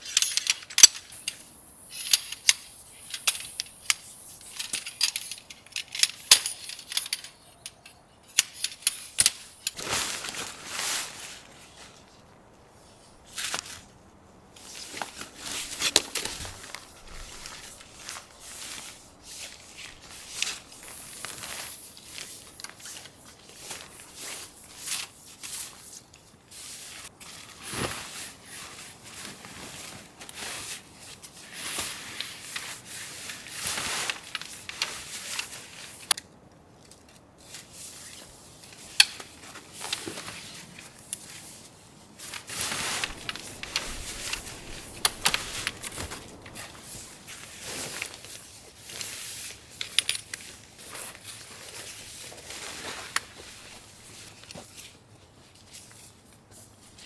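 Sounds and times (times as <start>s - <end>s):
tent poles clicking and knocking: 0.0s - 10.6s, 14.6s - 26.2s, 32.1s - 41.5s, 42.2s - 53.4s
tent fabric rustling: 8.9s - 36.1s, 37.4s - 57.0s.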